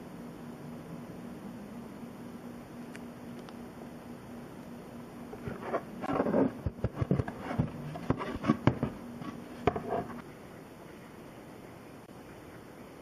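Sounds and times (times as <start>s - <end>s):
faint steady hum: 0.0s - 13.0s
card rustling and scraping: 5.3s - 10.2s.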